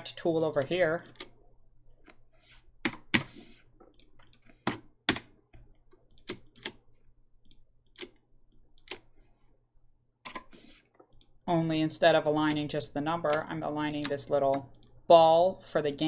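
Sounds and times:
computer mouse and keyboard clicks: 0:00.2 - 0:01.4, 0:02.8 - 0:06.8, 0:07.4 - 0:09.3, 0:10.2 - 0:11.4, 0:12.3 - 0:15.0.

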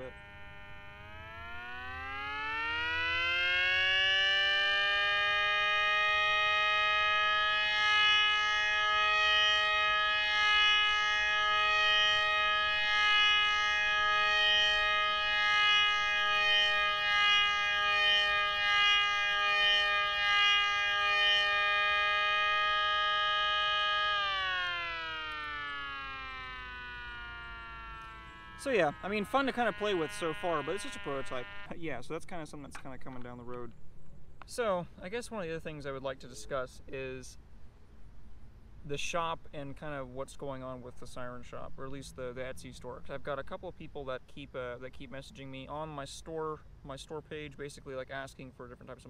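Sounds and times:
rotating siren wailing: 0:00.0 - 0:31.8.

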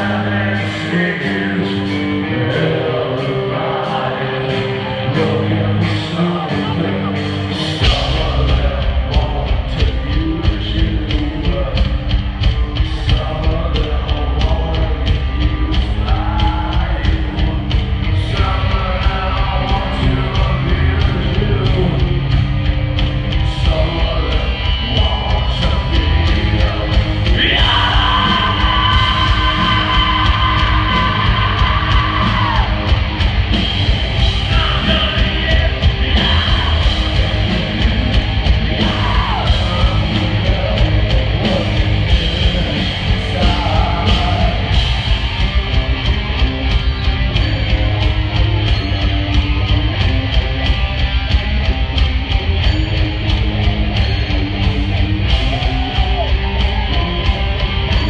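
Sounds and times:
singer yelling vocals: 0:00.0 - 0:12.1, 0:12.8 - 0:22.4, 0:23.4 - 0:45.4
live heavy rock band playing: 0:00.0 - 0:58.0.

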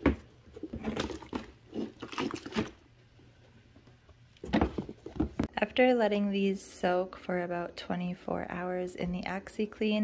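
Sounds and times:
shoe squishing in water: 0:00.7 - 0:02.8.

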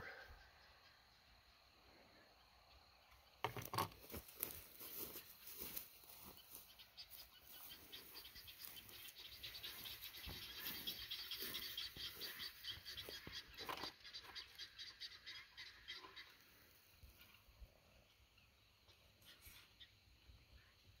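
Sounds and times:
footsteps crunching through dry grass: 0:03.9 - 0:14.5
rapid high chirping: 0:06.4 - 0:16.4.

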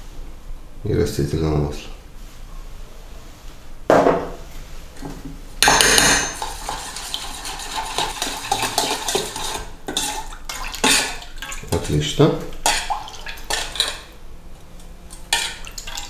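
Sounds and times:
metal spoon stirring in steel bowl: 0:05.6 - 0:14.2, 0:15.1 - 0:16.0.

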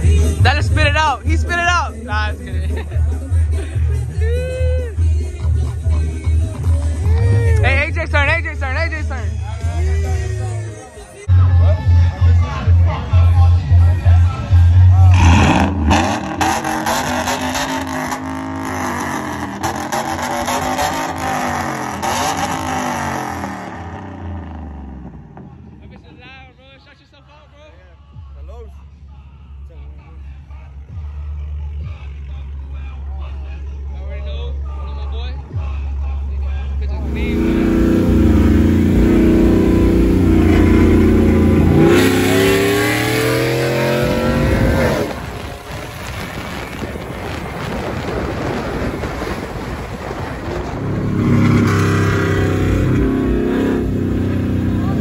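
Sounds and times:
pickup truck engine accelerating: 0:12.3 - 0:25.8, 0:36.9 - 0:55.0
car exhaust rumbling: 0:12.8 - 0:26.1, 0:36.9 - 0:55.0
wind noise: 0:44.0 - 0:52.9.

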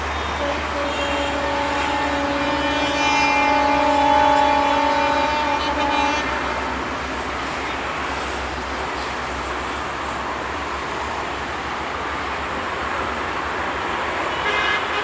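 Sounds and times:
train coaches rumbling on track: 0:00.0 - 0:15.0
train horn blast: 0:00.1 - 0:07.1, 0:14.3 - 0:15.0.

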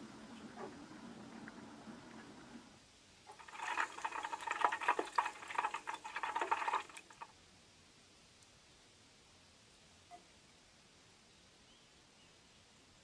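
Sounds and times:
oil and wax sizzling in saucepan: 0:03.3 - 0:07.2.

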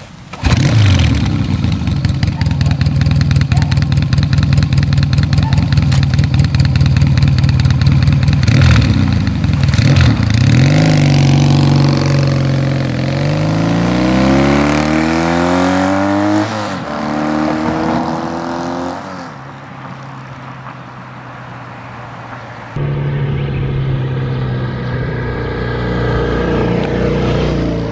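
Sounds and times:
motorcycle accelerating through gears: 0:00.3 - 0:19.4, 0:22.8 - 0:27.9
motorcycle engine idling: 0:01.1 - 0:10.4.

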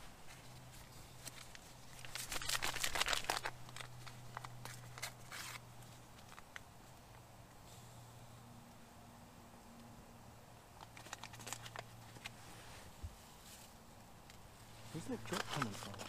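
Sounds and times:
faint low hum: 0:00.0 - 0:16.0
paper packet crinkling: 0:01.2 - 0:06.7, 0:10.8 - 0:12.4, 0:14.9 - 0:16.0.

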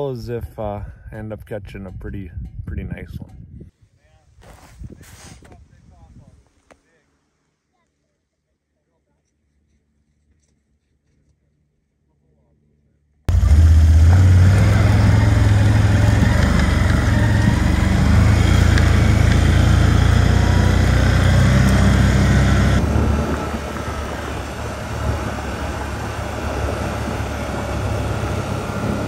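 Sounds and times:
vehicle engine humming: 0:13.3 - 0:29.0.

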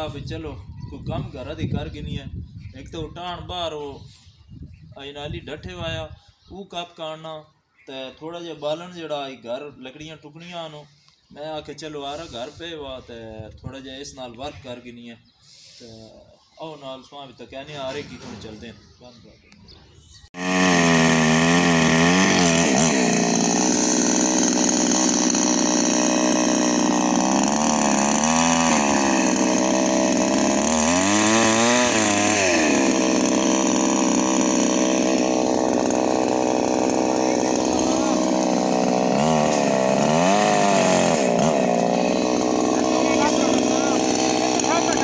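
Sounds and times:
chainsaw cutting wood: 0:20.4 - 0:45.0.

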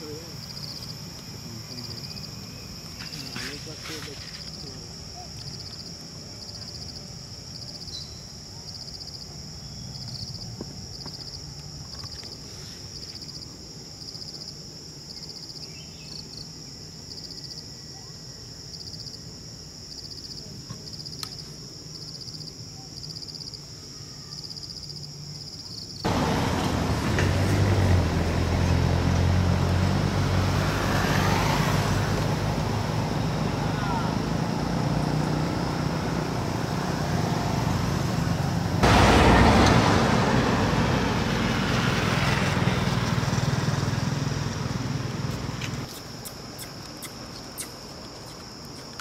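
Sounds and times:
insects droning: 0:00.0 - 0:49.0
vehicle engine rumble: 0:26.0 - 0:49.0.

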